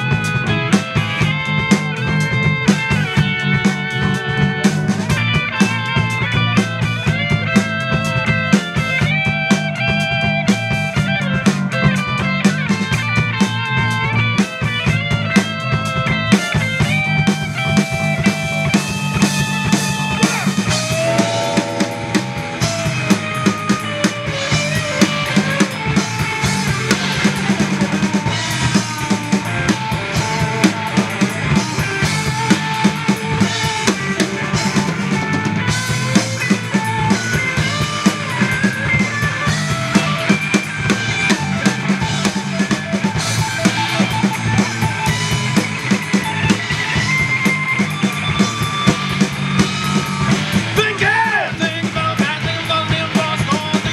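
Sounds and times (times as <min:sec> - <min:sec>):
bass guitar: 0:00.0 - 0:53.9
drum kit steady beat: 0:00.0 - 0:53.9
electric guitars: 0:00.0 - 0:53.9
guitar lead lines: 0:00.0 - 0:53.9.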